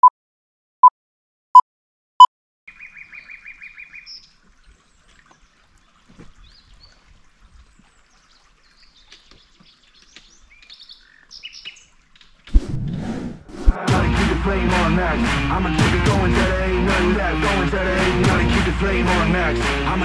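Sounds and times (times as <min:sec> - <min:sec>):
birds chirping and whistling: 0:02.7 - 0:04.3, 0:08.3 - 0:12.0.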